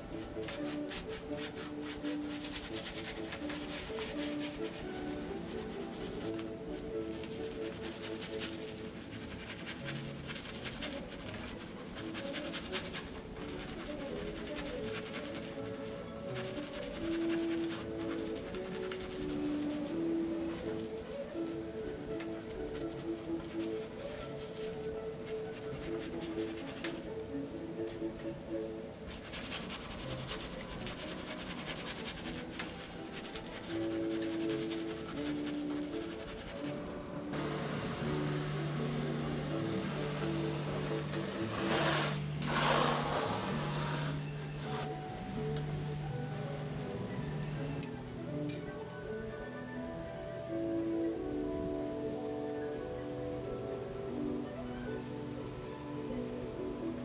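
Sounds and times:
paintbrush scrubbing on canvas: 0.2s - 21.4s, 22.8s - 27.1s, 29.1s - 45.0s
long held musical notes: 32.2s - 57.0s.

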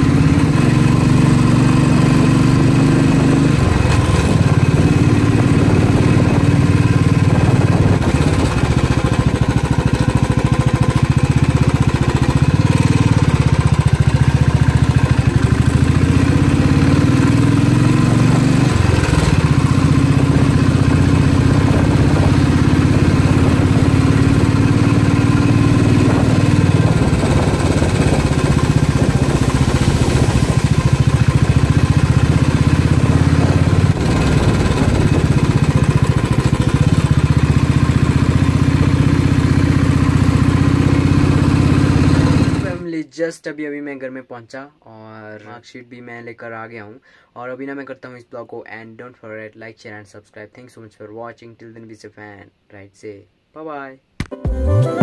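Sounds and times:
motorcycle engine running: 0.0s - 42.8s.

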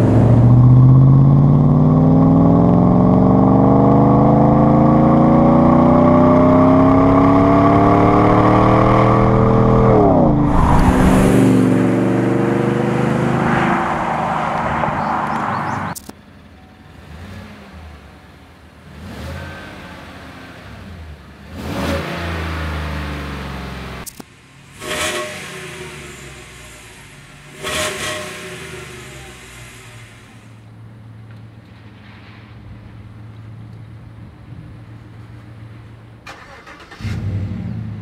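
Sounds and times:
loud engine accelerating: 0.0s - 16.0s.

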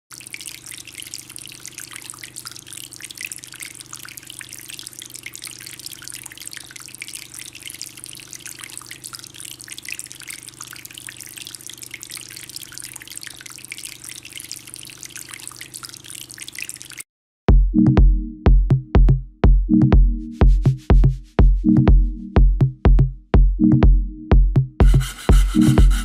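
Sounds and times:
water trickling and dripping: 0.1s - 17.1s.

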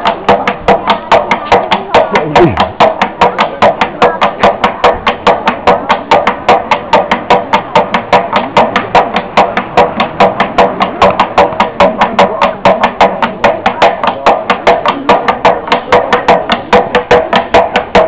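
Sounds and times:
hammer knocking on wooden barrel: 0.0s - 18.0s
voices: 0.1s - 6.0s.

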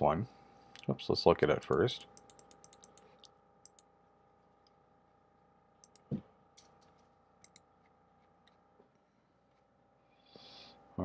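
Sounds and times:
faint steady hum: 0.0s - 11.0s
computer mouse clicks: 1.7s - 3.9s, 5.8s - 7.7s.

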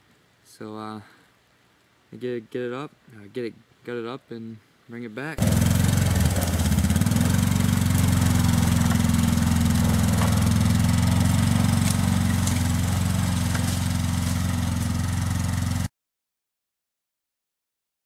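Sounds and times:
utility vehicle engine running: 5.4s - 15.9s.

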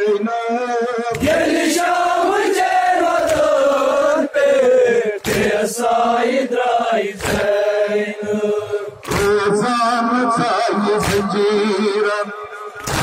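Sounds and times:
men chanting in unison: 0.8s - 13.0s
chest slaps: 9.0s - 9.4s, 11.0s - 11.3s, 12.8s - 13.0s.

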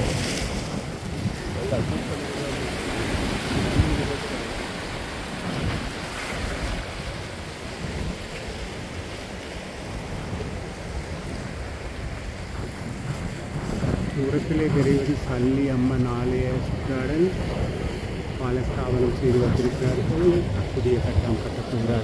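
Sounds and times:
sea waves breaking on rocks: 0.0s - 22.0s
wind rumble on microphone: 0.0s - 22.0s.

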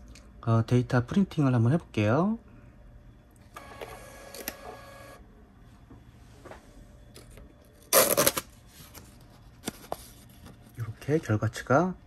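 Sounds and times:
receipt printer whirring: 3.6s - 5.2s
paper tearing: 7.9s - 8.5s.

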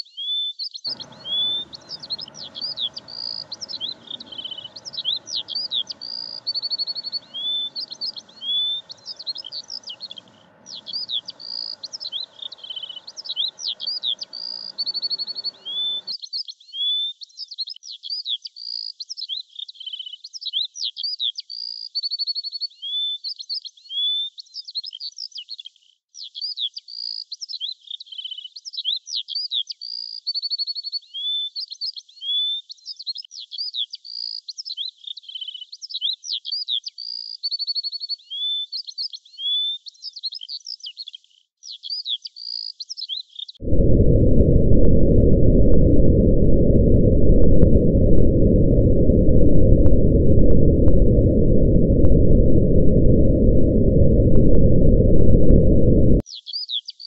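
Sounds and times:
songbird singing: 0.9s - 16.1s.

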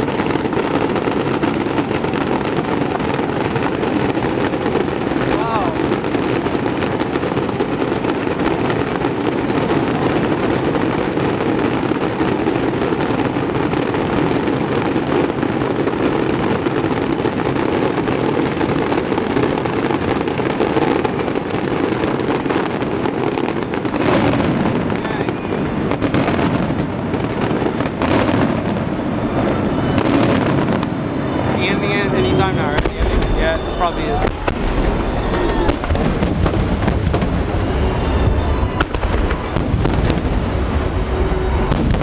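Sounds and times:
firework shells bursting: 0.0s - 42.0s.

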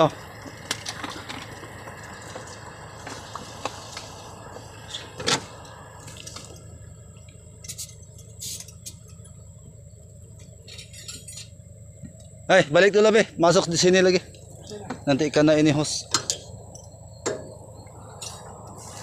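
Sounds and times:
steady hiss: 0.0s - 11.5s.

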